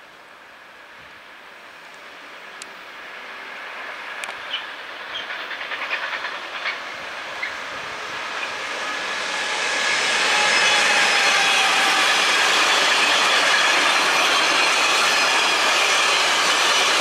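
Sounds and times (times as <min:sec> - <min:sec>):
freight train running noise: 0:00.0 - 0:17.0
wheels clacking over rail joints: 0:04.2 - 0:07.8
faint high wheel squeal: 0:04.5 - 0:16.9.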